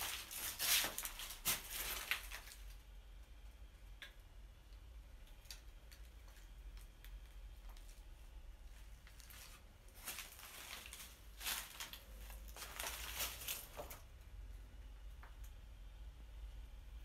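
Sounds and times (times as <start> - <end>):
footsteps crunching on rubble: 0.0 - 2.6, 5.9 - 14.0.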